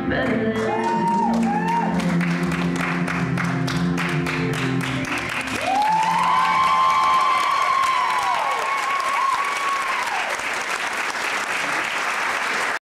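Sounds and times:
recorded song: 0.0s - 8.4s
audience applauding: 0.6s - 12.8s.

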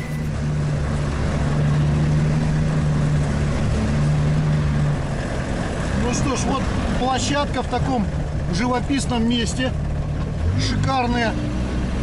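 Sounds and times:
vehicle engine droning: 0.0s - 12.0s.

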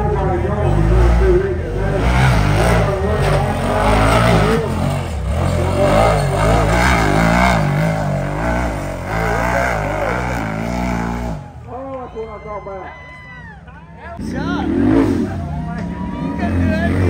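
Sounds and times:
engine revving: 0.0s - 11.7s, 14.2s - 17.0s.

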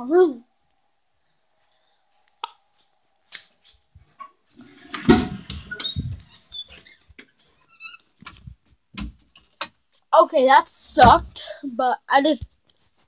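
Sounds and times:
microphone handling noise: 5.0s - 6.4s, 8.2s - 9.2s.

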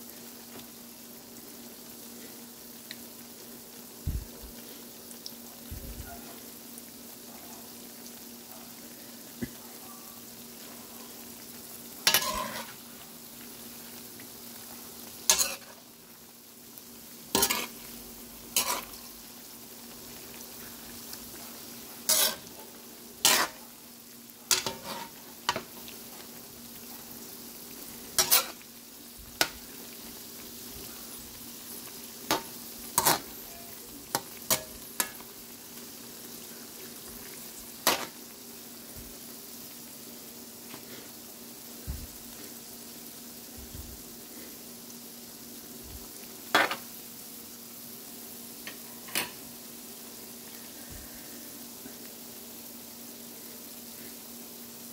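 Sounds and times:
food sizzling in oil: 0.0s - 54.9s
metal spatula scraping wok: 12.1s - 12.8s, 15.3s - 15.8s, 17.4s - 17.8s, 18.5s - 19.0s, 22.0s - 22.5s, 23.2s - 23.6s, 24.5s - 25.2s, 28.2s - 28.6s.

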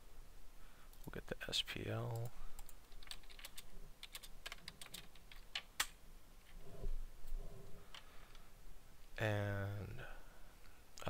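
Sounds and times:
typing on computer keyboard: 2.2s - 5.9s.

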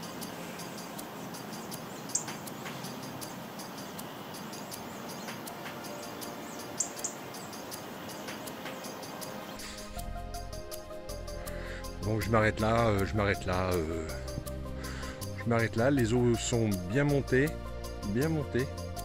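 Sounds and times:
steady outdoor hiss: 0.0s - 19.0s
high bird chirps: 0.1s - 10.0s.

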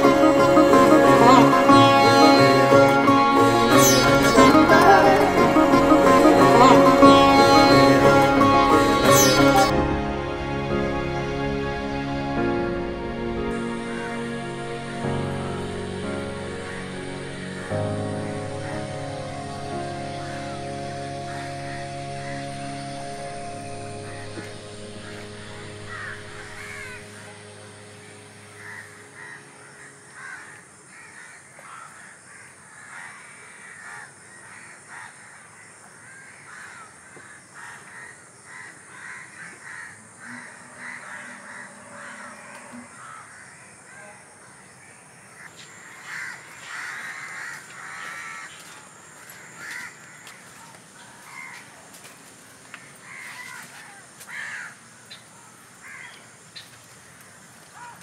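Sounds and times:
crows cawing: 21.3s - 22.5s, 24.2s - 27.3s, 28.6s - 52.1s, 52.7s - 58.0s.

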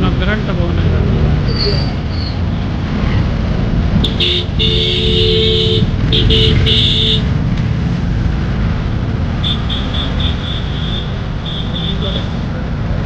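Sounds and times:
road traffic rumbling: 0.0s - 13.0s
vehicle horn honking: 4.0s - 7.3s, 9.4s - 12.4s.

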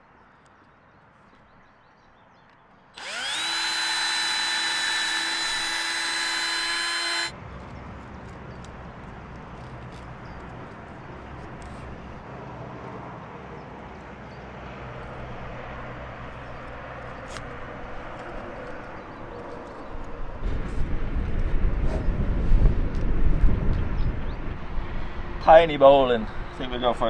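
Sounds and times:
wind buffeting microphone: 18.4s - 27.0s.

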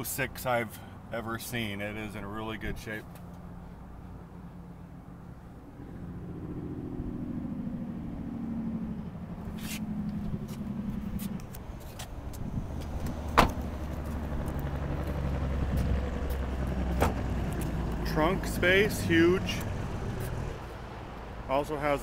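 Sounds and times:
car door shutting: 13.0s - 13.7s, 16.9s - 17.2s.

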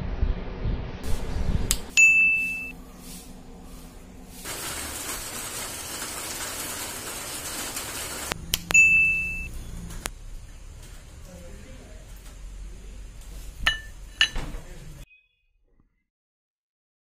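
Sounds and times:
steady hiss: 1.1s - 8.4s
metallic dings: 2.0s - 2.7s, 8.7s - 9.5s, 13.7s - 14.5s.

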